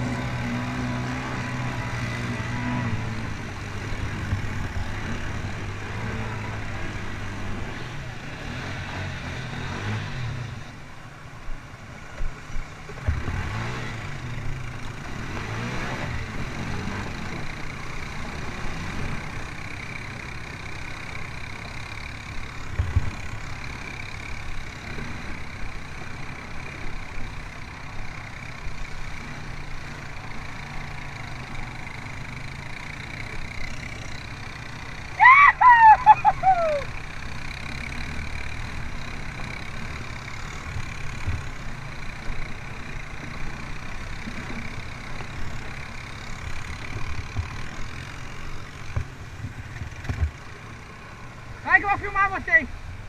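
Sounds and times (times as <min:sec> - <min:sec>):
atv engines running: 0:00.0 - 0:53.0
loud high falling call: 0:35.2 - 0:36.9.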